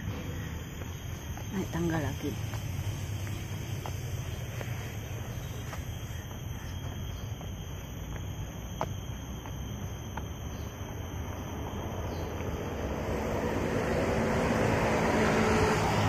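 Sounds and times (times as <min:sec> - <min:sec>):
footsteps on concrete stairs: 0:00.0 - 0:12.6
high-pitched whine: 0:00.0 - 0:16.0
steady low rumble: 0:00.0 - 0:16.0.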